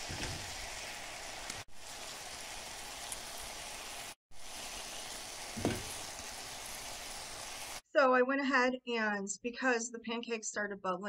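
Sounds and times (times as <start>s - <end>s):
vegetables sizzling in butter: 0.0s - 7.8s.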